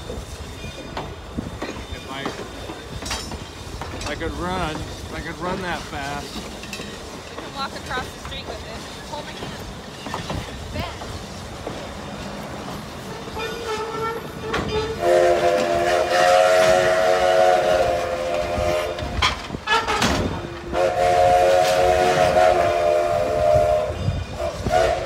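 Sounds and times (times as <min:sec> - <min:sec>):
train cars rumbling on rails: 0:00.0 - 0:25.0
steam whistle blasts: 0:13.1 - 0:20.0, 0:20.6 - 0:25.0.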